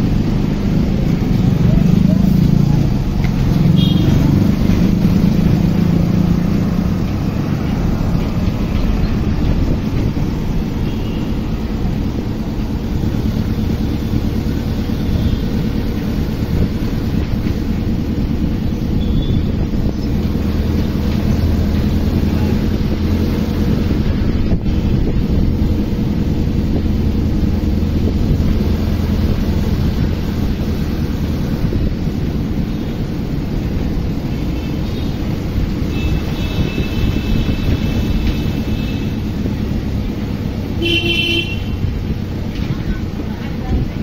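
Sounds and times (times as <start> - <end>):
road noise: 0.0 - 44.0
vehicle engine drone: 0.0 - 44.0
wind on microphone: 4.3 - 12.3, 16.3 - 34.6, 35.2 - 40.8
faint vehicle horn: 40.8 - 41.8.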